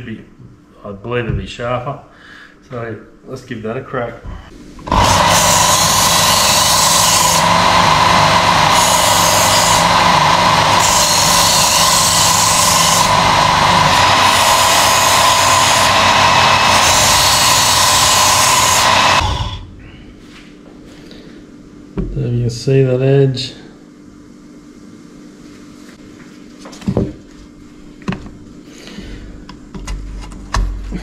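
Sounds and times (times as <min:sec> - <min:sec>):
sharpener motor whine: 0:04.8 - 0:19.7
blade grinding on belt: 0:04.9 - 0:19.6.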